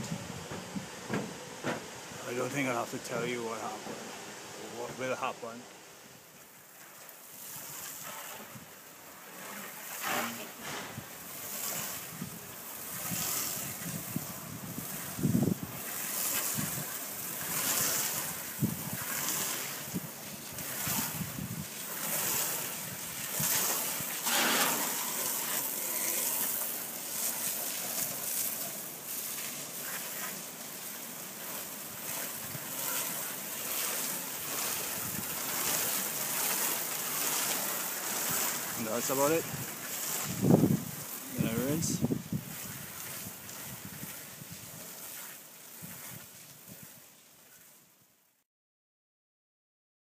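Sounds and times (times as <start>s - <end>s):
low buffeting: 0.0s - 6.0s
water running onto metal roof: 6.5s - 47.0s
spray hissing on wooden siding: 9.6s - 46.8s.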